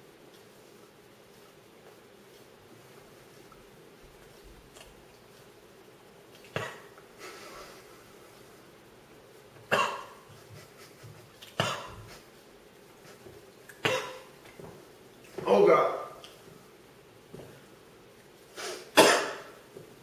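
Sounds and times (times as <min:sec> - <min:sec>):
man coughing: 0:11.6 - 0:12.1, 0:13.8 - 0:14.3, 0:19.0 - 0:19.5.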